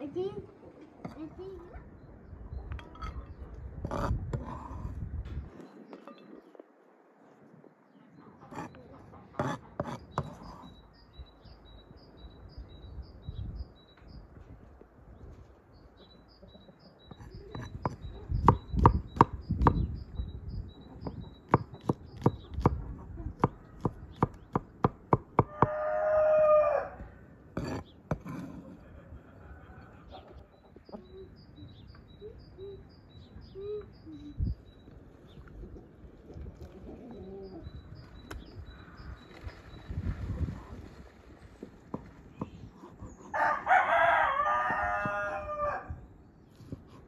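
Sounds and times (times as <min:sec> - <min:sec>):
small bird chirping: 0:15.7 - 0:24.8, 0:30.1 - 0:35.8
rooster crowing: 0:25.4 - 0:27.1, 0:43.3 - 0:46.0
chicken clucking: 0:28.6 - 0:34.4, 0:35.6 - 0:37.7.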